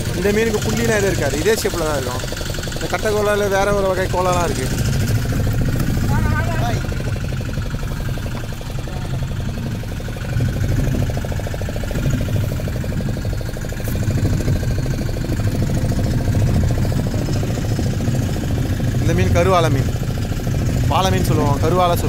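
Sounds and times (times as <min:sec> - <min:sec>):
boat engine pulsing drone: 0:00.0 - 0:22.0.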